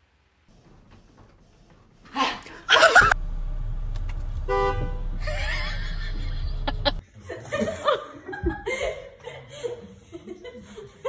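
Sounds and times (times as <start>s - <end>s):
car horn toot: 4.2s - 5.5s.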